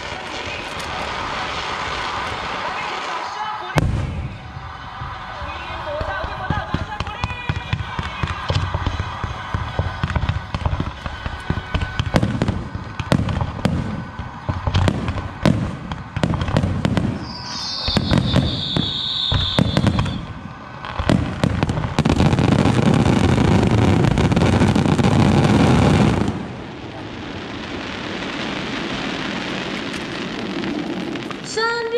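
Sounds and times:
high firework whistle: 0.0 - 26.4
fireworks bursting and crackling: 0.0 - 31.9.

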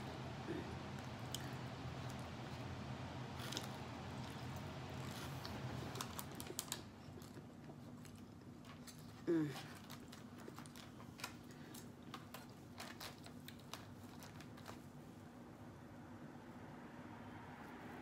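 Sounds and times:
steady low hum: 0.0 - 18.0
chewing food: 0.7 - 14.9.

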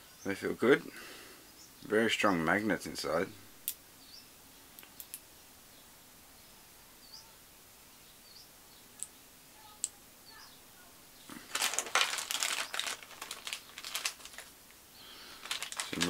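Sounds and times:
plastic bag crinkling: 11.3 - 16.0.

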